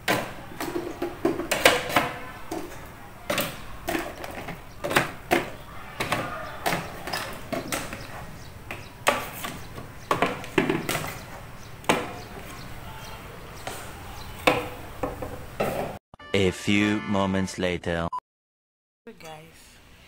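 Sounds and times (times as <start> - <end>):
objects knocking and clattering: 0.0 - 12.6.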